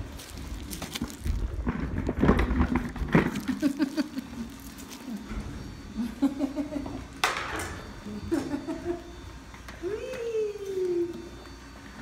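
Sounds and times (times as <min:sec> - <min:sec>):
chair rolling across floor: 0:00.0 - 0:05.9.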